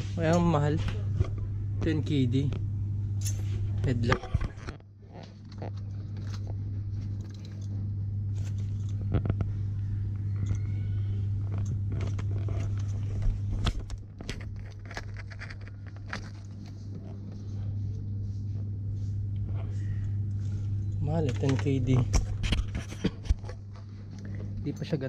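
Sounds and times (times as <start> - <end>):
low hum: 0.0 - 25.0
plastic packaging crinkling: 11.9 - 16.8.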